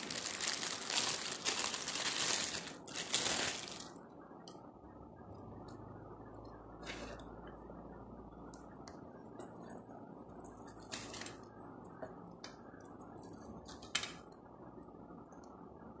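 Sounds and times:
plastic packaging crinkling: 0.0s - 4.0s, 10.7s - 11.5s
background noise: 0.0s - 16.0s.

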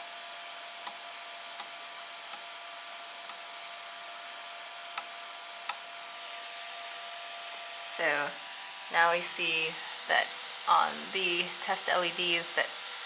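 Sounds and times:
small switches clicking: 3.2s - 3.4s, 4.9s - 5.1s.

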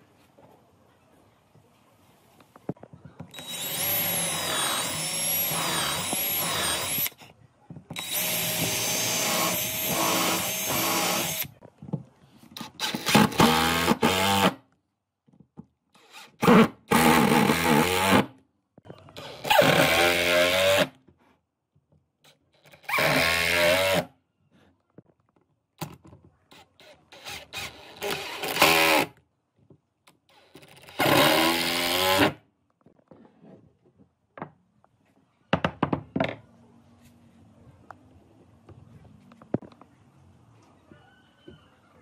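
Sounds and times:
cordless drill driving screws: 3.3s - 7.2s, 8.0s - 11.5s, 19.2s - 20.9s, 22.7s - 24.1s, 26.6s - 29.1s, 30.3s - 32.4s
wood and tools knocking: 32.8s - 34.6s, 35.5s - 36.5s.

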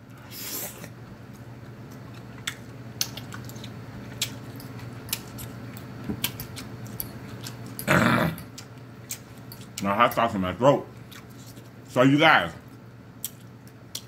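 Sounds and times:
steady low hum: 0.0s - 14.0s
close-miked chewing: 0.6s - 10.3s, 10.9s - 11.9s
wet smacks and lip clicks: 13.2s - 14.0s.

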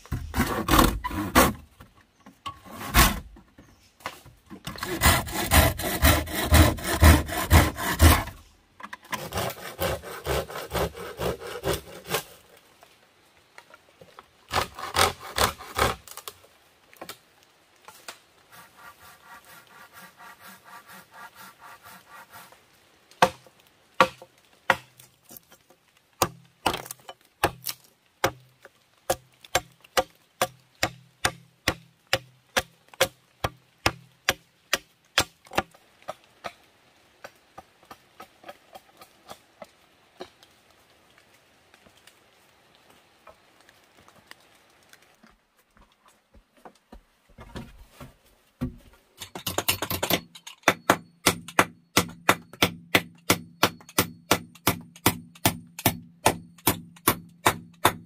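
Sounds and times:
hand saw cutting bamboo: 0.1s - 1.7s, 2.6s - 3.4s, 4.6s - 8.4s, 9.0s - 12.4s, 14.5s - 16.2s, 18.5s - 22.6s
sharp wooden knocks: 48.6s - 58.0s.

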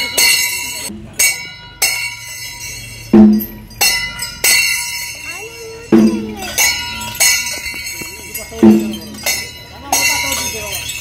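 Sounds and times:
large metal bells ringing: 0.0s - 11.0s.

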